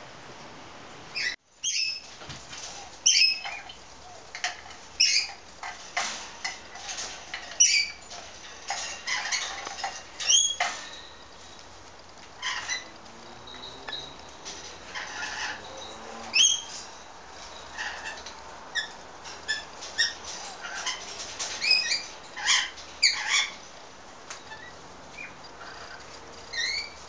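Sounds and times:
cockatoos squeaky calls: 1.2s - 4.3s, 5.0s - 5.4s, 14.9s - 16.8s, 17.6s - 23.6s, 24.4s - 27.0s
light scratching and clicking: 2.0s - 27.0s.

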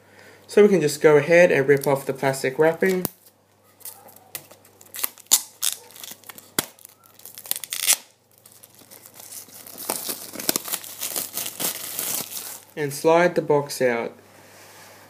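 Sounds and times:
plastic shrink wrap tearing: 2.8s - 12.8s.

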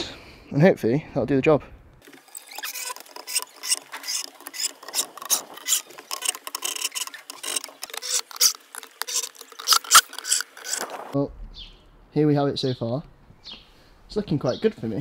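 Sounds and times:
cordless drill driving screws: 2.2s - 10.9s.

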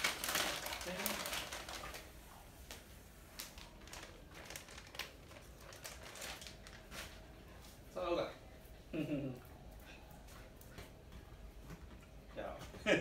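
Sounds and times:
plastic packet crinkling: 0.0s - 7.1s.

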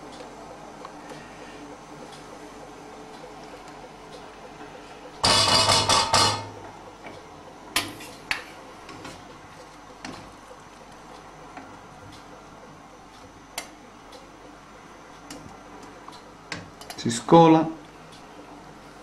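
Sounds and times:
metal pots clattering: 5.2s - 6.6s.

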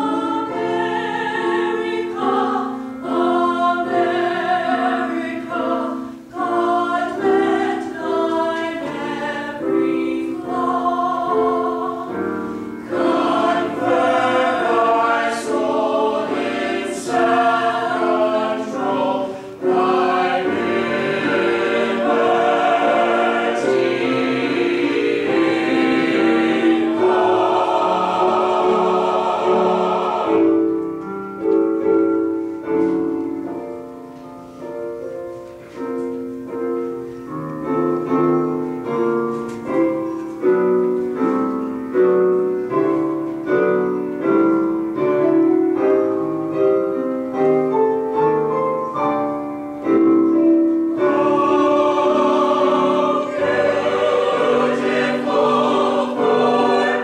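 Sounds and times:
mixed choir singing: 0.0s - 32.2s, 50.0s - 57.0s
piano playing: 0.0s - 57.0s.

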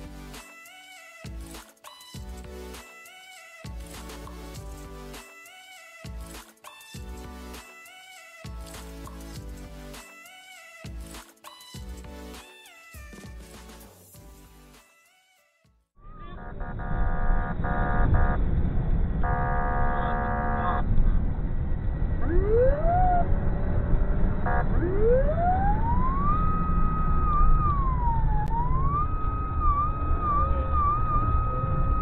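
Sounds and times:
car engine and road noise: 16.6s - 32.0s
horn-like tone blasts: 19.2s - 20.8s
police siren wailing: 22.2s - 32.0s.

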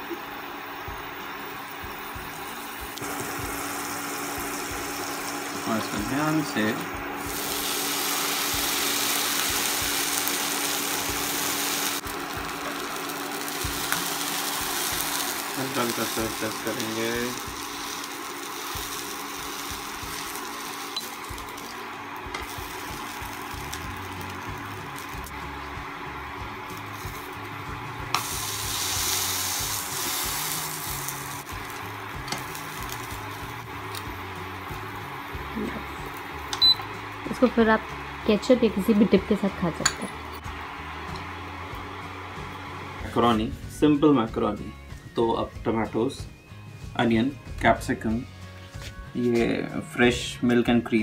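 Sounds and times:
cooktop hum: 0.0s - 44.6s
bread frying in butter sizzling: 1.6s - 37.5s.

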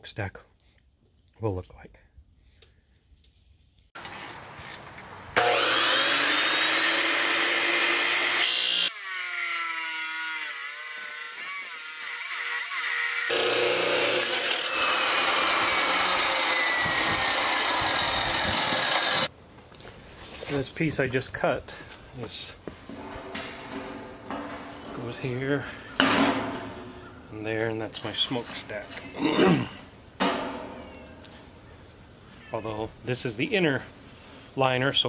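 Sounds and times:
abrasive wheel grinding steel: 5.4s - 9.2s, 12.5s - 19.3s
chop saw motor: 5.4s - 19.3s.

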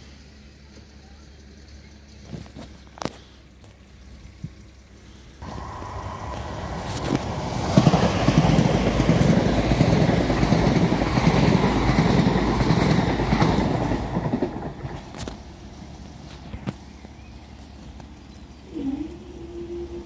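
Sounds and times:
electric train running past: 5.4s - 16.3s, 18.6s - 20.0s.

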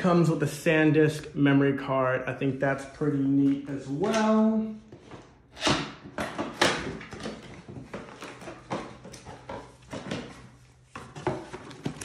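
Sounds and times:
cardboard packaging rustling: 6.4s - 12.0s.

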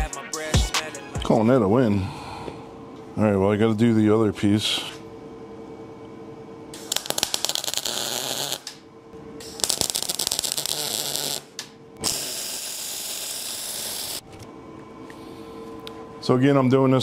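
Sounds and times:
welding arc crackling and hissing: 6.8s - 8.8s, 9.4s - 14.2s.

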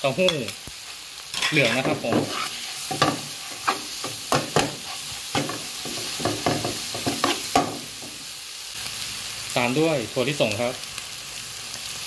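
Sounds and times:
noodles sizzling in a wok: 0.0s - 12.0s
metal spatula scraping a pan: 1.3s - 8.1s.

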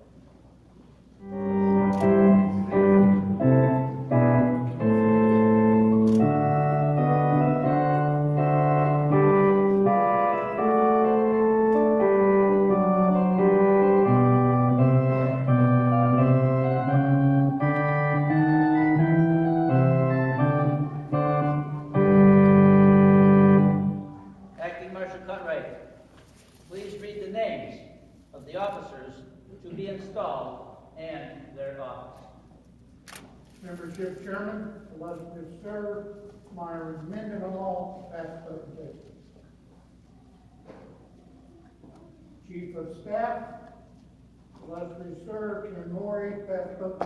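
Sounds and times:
organ playing sustained chords: 1.1s - 26.1s, 42.4s - 47.0s.

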